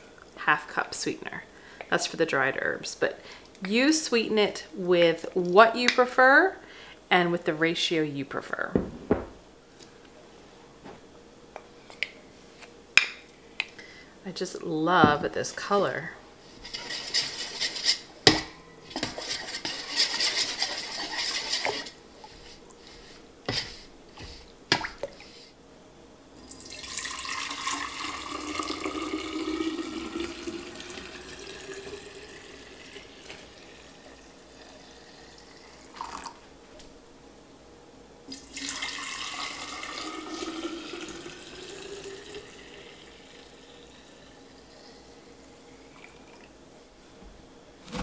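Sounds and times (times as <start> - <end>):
tea pouring into glass jar: 26.5 - 34.3, 35.9 - 36.3, 38.3 - 43.9.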